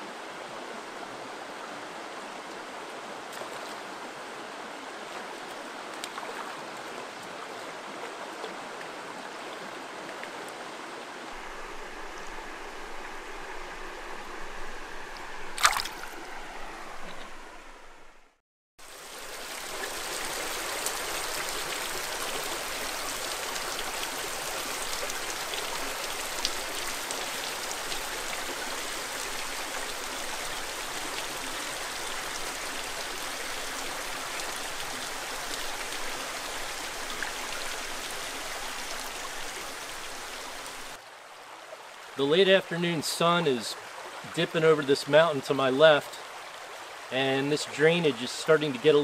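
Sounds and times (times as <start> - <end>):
water trickling down rock: 11.4 - 17.6.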